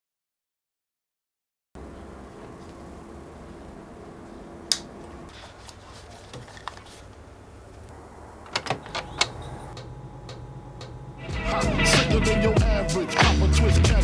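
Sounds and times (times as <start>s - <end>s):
low electrical hum: 1.8s - 13.0s
turntable and mixer control clicks: 4.7s - 4.9s, 7.8s - 11.0s.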